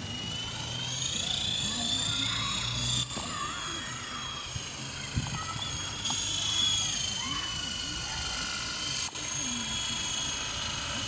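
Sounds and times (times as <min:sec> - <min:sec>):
rc helicopter motors whining: 0:00.0 - 0:11.0.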